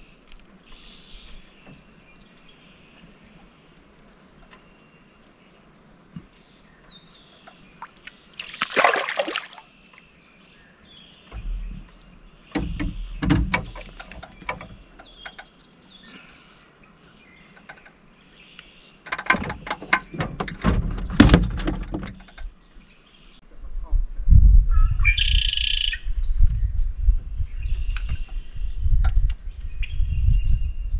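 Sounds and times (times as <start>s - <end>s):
fish splashing at surface: 8.4s - 9.7s
low knocks: 11.3s - 15.4s
clicks and thumps against boat: 11.3s - 15.5s, 17.5s - 18.0s, 19.0s - 22.5s.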